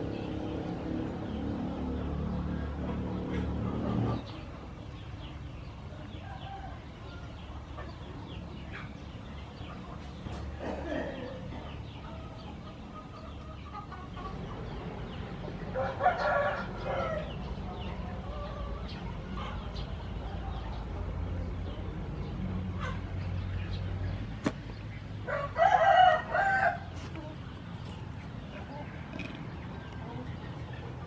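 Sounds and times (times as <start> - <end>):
rooster crowing: 15.7 - 17.3, 25.3 - 27.0.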